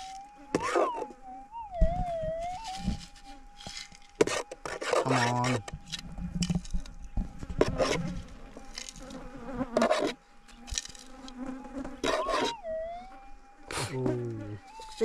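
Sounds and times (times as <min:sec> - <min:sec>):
flies buzzing: 0:00.0 - 0:15.0
scraping in dirt: 0:02.3 - 0:12.6.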